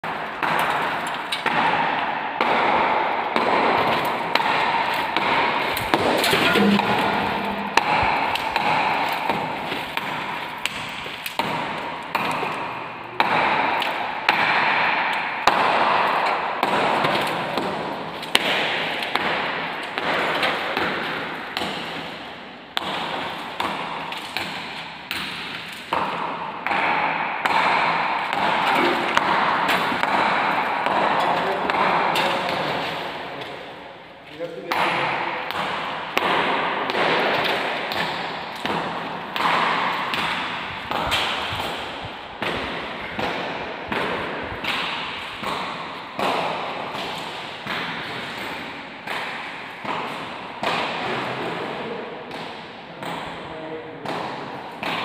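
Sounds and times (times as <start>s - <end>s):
sharp ringing strikes: 6.0s - 8.7s.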